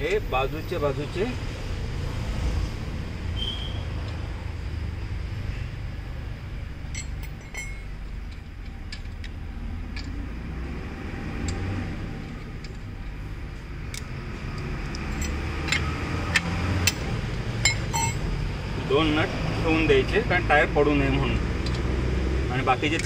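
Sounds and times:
metallic clicks of wheel nuts: 6.8 - 10.3, 11.3 - 18.3, 21.6 - 21.9.

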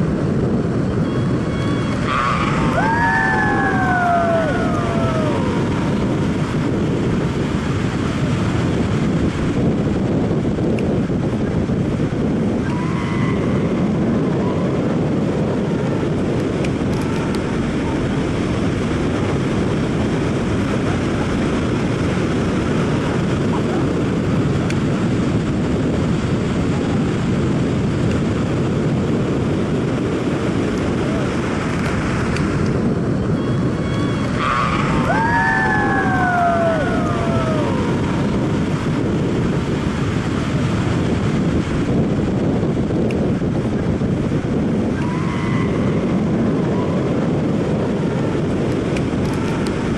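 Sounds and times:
wind on microphone: 0.0 - 49.9
whitewater river: 0.9 - 9.4, 29.4 - 42.5
person whooping: 2.6 - 5.9, 34.9 - 38.2.

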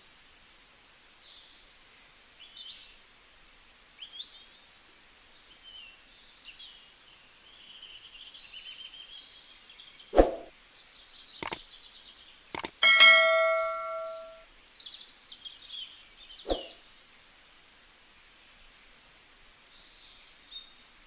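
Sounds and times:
birds chirping: 12.6 - 14.4, 16.5 - 16.8.

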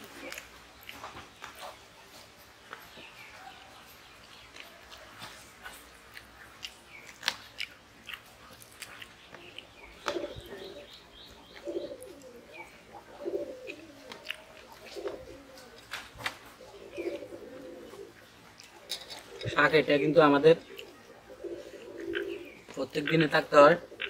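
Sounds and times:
small birds chirping: 0.0 - 24.0
dove cooing: 10.0 - 24.0.

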